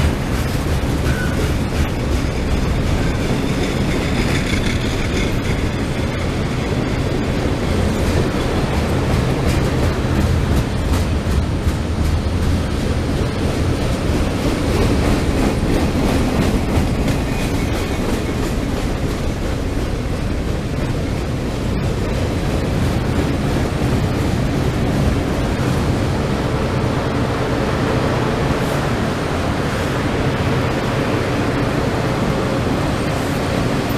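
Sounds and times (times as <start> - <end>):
wheels clicking over rail joints: 0.0 - 25.7
steel wheels rumbling on rail: 0.0 - 33.9.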